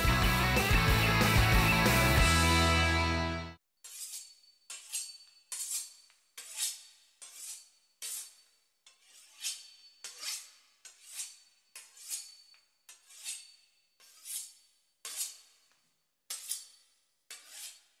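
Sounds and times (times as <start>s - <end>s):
knife sawing through crisp pastry: 3.8s - 15.7s, 16.3s - 18.0s.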